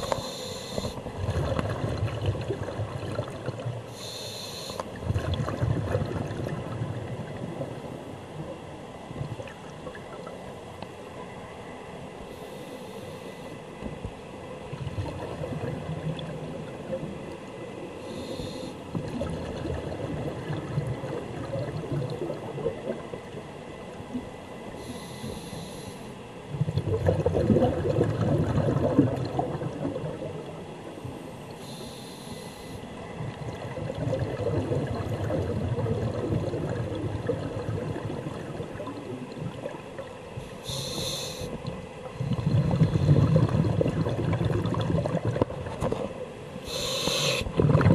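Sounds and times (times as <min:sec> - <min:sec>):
regulator inhale hiss: 0:00.0 - 0:01.0, 0:03.9 - 0:04.9, 0:12.3 - 0:13.6, 0:18.0 - 0:18.9, 0:24.8 - 0:26.2, 0:31.6 - 0:32.9, 0:40.4 - 0:41.6, 0:46.6 - 0:47.5
exhaled air bubbling: 0:00.0 - 0:07.9, 0:14.7 - 0:17.0, 0:18.1 - 0:23.4, 0:26.5 - 0:30.7, 0:33.1 - 0:47.9.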